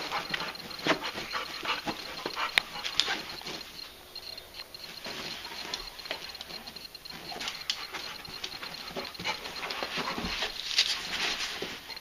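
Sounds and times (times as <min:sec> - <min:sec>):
dog paws scuffing on bed: 0:04.9 - 0:12.0.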